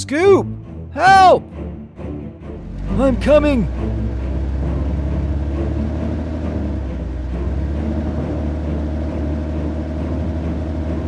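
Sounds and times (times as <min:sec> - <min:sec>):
heavy machine engine humming: 0:02.3 - 0:11.0.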